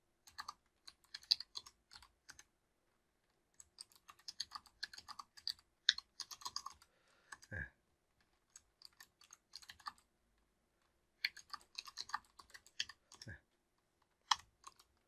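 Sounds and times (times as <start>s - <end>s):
typing on computer keyboard: 0.2s - 2.5s, 3.6s - 7.5s, 8.5s - 10.0s, 11.2s - 13.3s, 14.2s - 15.0s.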